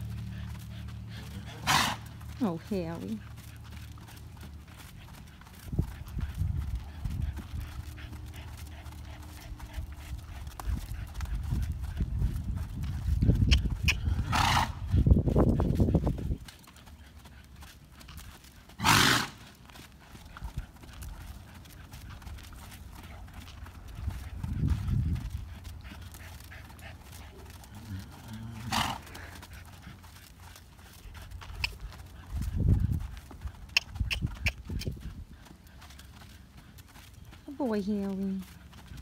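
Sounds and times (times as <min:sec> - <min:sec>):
horse snorting: 0:00.0 - 0:11.6, 0:13.3 - 0:15.1, 0:18.7 - 0:19.6, 0:24.0 - 0:30.2
hooves thudding on sand: 0:00.0 - 0:39.0.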